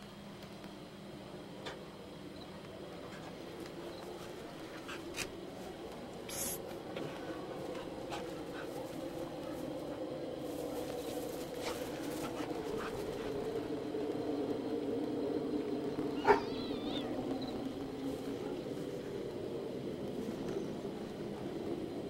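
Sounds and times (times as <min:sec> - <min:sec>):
steady low hum: 0:00.0 - 0:22.0
dog yelping: 0:16.1 - 0:17.2.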